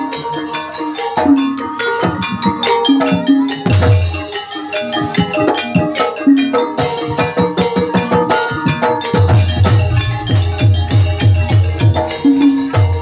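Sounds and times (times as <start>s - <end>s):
hand drum strokes: 0.0s - 13.0s
metallophone notes: 0.0s - 13.0s.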